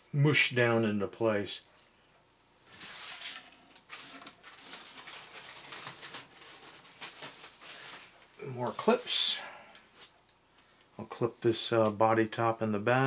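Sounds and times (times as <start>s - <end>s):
hands rustling plastic parts: 2.7s - 9.0s.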